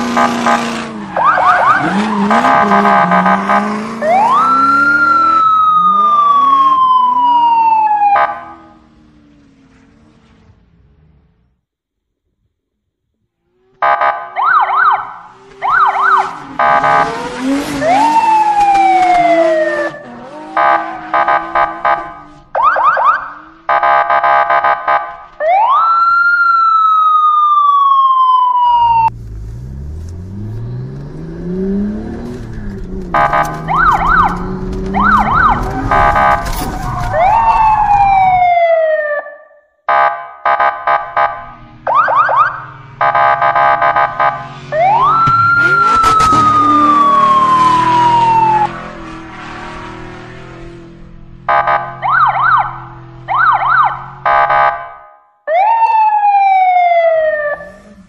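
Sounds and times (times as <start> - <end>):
toy siren wailing: 1.2 - 3.2, 4.0 - 8.5, 14.4 - 17.1, 33.2 - 39.2, 44.8 - 48.8.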